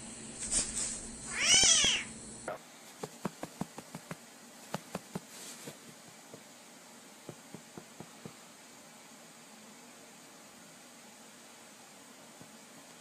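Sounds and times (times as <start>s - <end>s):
low hiss: 0.0s - 13.0s
kitten mewing: 1.3s - 2.6s.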